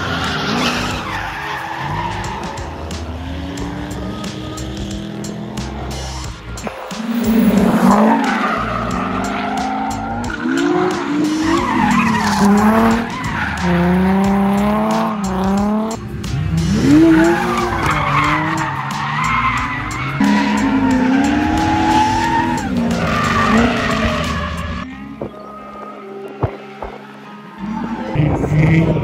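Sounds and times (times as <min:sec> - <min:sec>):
car engine revving hard: 0:00.0 - 0:06.4, 0:07.0 - 0:24.9
tires squealing and skidding: 0:00.0 - 0:29.0.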